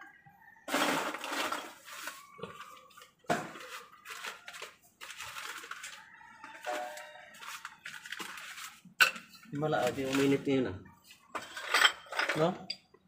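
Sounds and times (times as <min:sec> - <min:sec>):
paper bag rustling: 0:00.7 - 0:02.9, 0:03.5 - 0:08.9.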